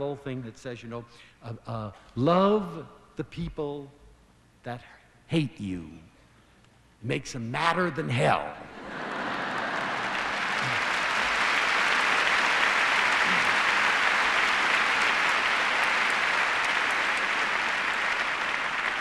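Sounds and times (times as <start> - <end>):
audience applauding: 8.8 - 19.0.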